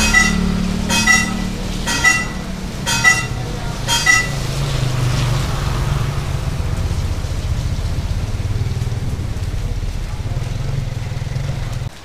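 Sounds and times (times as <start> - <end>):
low engine drone: 0.0 - 8.4
motorcycle passing on wet road: 0.0 - 12.0.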